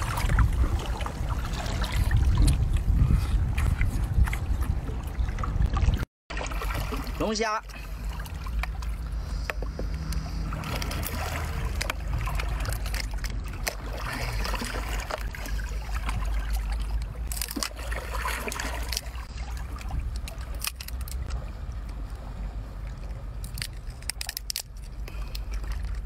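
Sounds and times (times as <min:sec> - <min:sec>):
wind rumble on microphone: 0:00.0 - 0:06.1
lobster shell cracking: 0:23.4 - 0:26.0.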